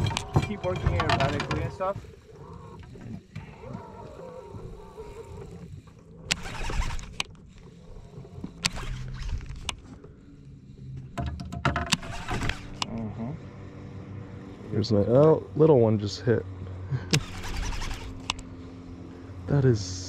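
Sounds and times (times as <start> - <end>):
fishing reel clicking and rattling: 6.2 - 9.9, 11.9 - 12.9, 17.2 - 18.4.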